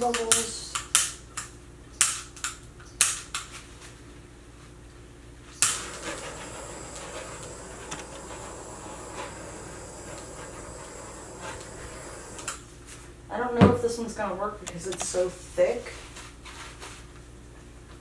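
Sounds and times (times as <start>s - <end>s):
sharp clicks: 5.6s - 6.2s, 14.6s - 15.2s
torch flame hissing: 5.6s - 12.7s.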